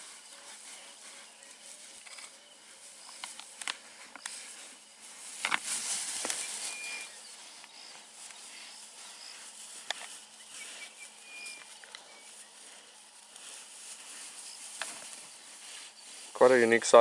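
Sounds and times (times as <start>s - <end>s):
insect chorus: 0.0s - 17.0s
faint high chirp: 6.2s - 9.6s, 10.3s - 12.6s.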